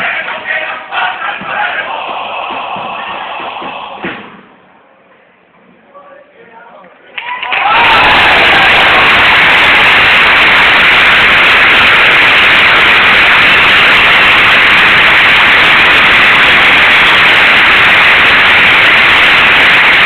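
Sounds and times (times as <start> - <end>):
loud steady rushing static noise: 7.8 - 20.0.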